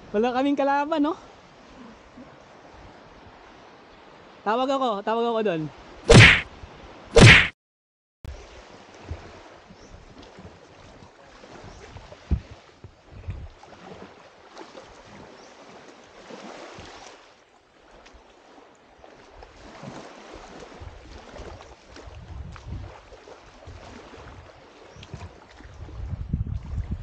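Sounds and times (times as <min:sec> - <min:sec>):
surf washing on a beach: 0:01.1 - 0:05.0
sharp thump: 0:06.1 - 0:06.4, 0:07.2 - 0:07.5
wind gusting on microphone: 0:11.7 - 0:13.6, 0:22.0 - 0:23.0, 0:25.2 - 0:27.0.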